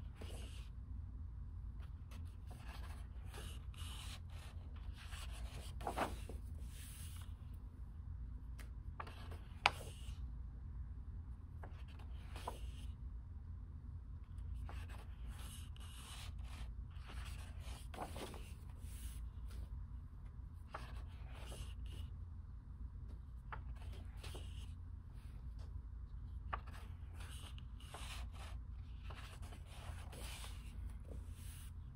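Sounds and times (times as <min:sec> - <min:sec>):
steady low hum: 0:00.0 - 0:31.9
book pages turning: 0:02.1 - 0:07.3, 0:08.6 - 0:10.2, 0:14.6 - 0:19.6, 0:26.4 - 0:31.8.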